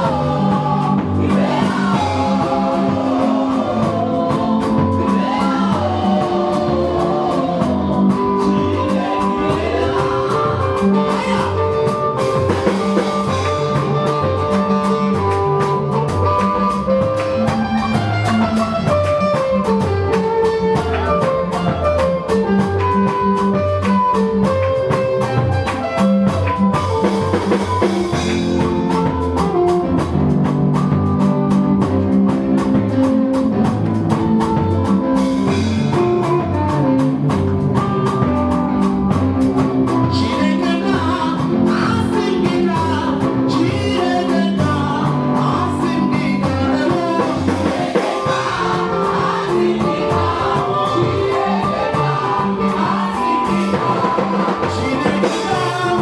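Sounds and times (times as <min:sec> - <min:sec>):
woman singing: 0:00.0 - 0:11.9, 0:40.0 - 0:56.0
band playing upbeat music: 0:00.0 - 0:56.0
drums keeping a steady beat: 0:00.0 - 0:56.0.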